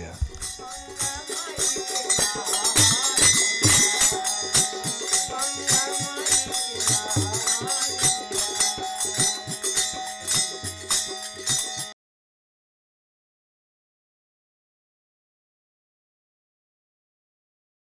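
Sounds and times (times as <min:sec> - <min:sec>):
man singing: 0:00.0 - 0:10.0
harmonium: 0:00.0 - 0:12.0
jingling hand percussion: 0:00.0 - 0:12.0.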